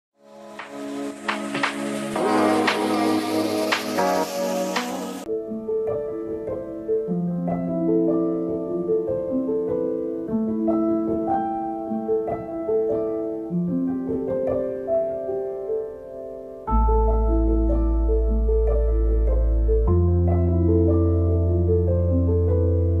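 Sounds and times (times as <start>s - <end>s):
piano melody of held notes: 0.2s - 23.0s.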